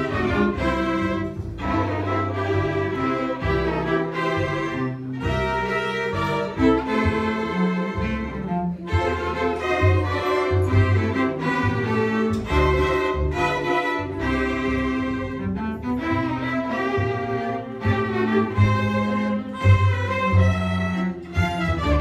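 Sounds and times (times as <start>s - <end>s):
string ensemble playing: 0.0s - 22.0s.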